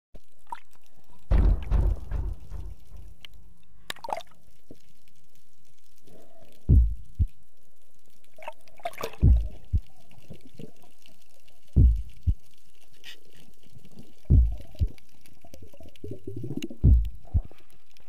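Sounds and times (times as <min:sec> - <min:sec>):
heartbeat thumps: 0:01.3 - 0:03.2, 0:06.7 - 0:07.3, 0:09.2 - 0:09.9, 0:11.8 - 0:12.4, 0:14.3 - 0:15.0, 0:16.8 - 0:17.5.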